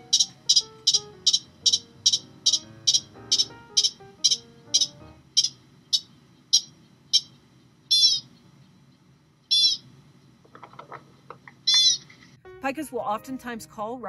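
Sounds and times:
pika squeaky calls: 0.1 - 8.4, 9.5 - 9.9, 11.7 - 12.1.

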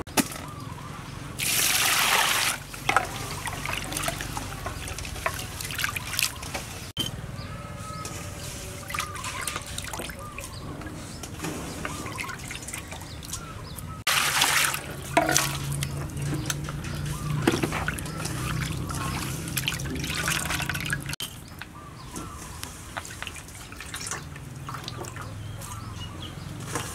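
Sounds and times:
water trickling and dripping: 1.4 - 6.6, 8.8 - 21.8, 22.5 - 25.5
water boiling and bubbling: 1.4 - 6.9, 11.7 - 21.2, 22.8 - 25.4.

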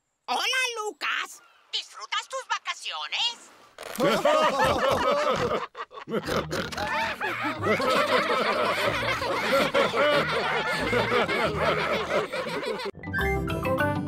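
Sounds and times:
cartoon characters laughing: 4.0 - 12.9.

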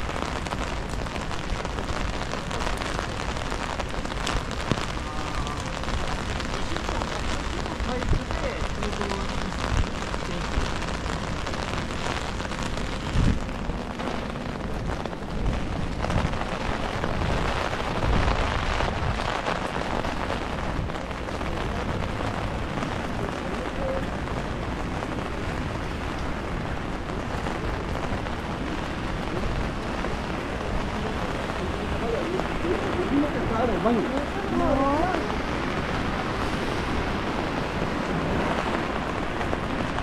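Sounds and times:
rain on wet street: 0.0 - 40.0
rain pattering on umbrella: 0.0 - 40.0.

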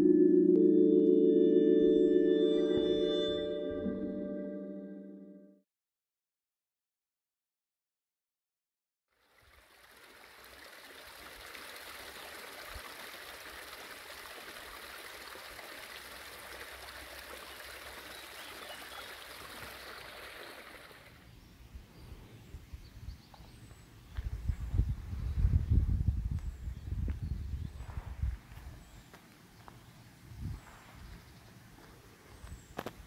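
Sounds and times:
stream water rushing: 9.4 - 21.2.

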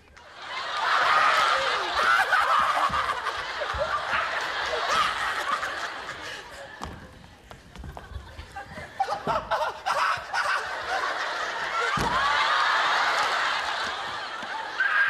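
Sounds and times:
studio audience laughing: 0.2 - 6.9, 7.8 - 15.0
dull thump: 11.9 - 12.4.

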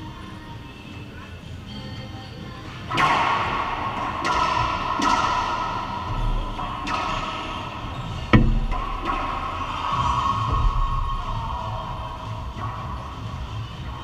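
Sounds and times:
racquetball cracking off walls: 6.8 - 9.8.

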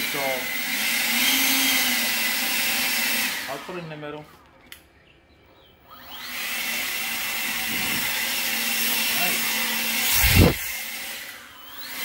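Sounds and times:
electric leaf blower whirring: 0.0 - 3.9, 5.9 - 12.0
loud burst of air: 10.1 - 10.7.

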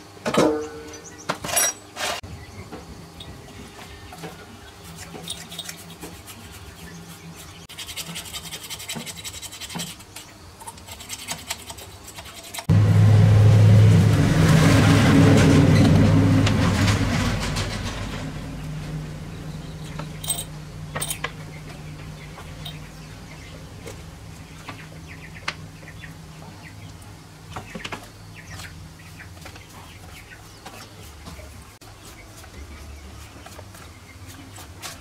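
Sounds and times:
metal parts clinking in basin: 1.4 - 2.2, 5.2 - 5.8, 19.9 - 21.3, 22.6 - 22.8.

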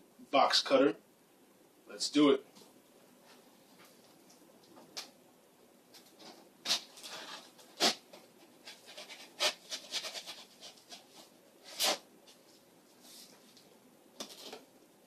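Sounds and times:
box cutter slicing cardboard: 6.7 - 8.0, 11.6 - 12.0.

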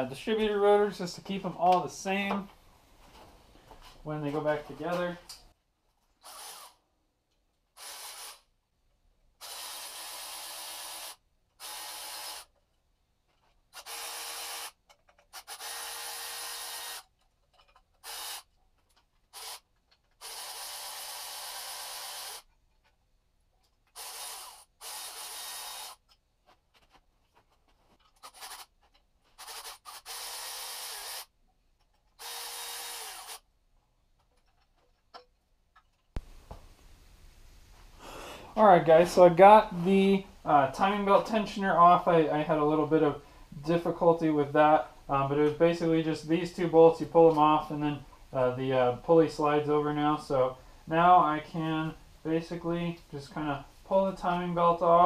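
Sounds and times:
rasping tool bursts: 6.2 - 6.8, 7.8 - 8.5, 9.4 - 12.6, 13.7 - 17.2, 18.0 - 18.5, 19.3 - 22.5, 23.9 - 26.1, 28.1 - 31.3, 32.2 - 33.5.

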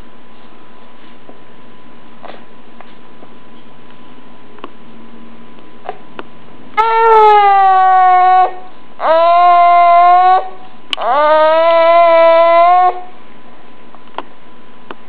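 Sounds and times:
baby calling out: 6.8 - 13.1.

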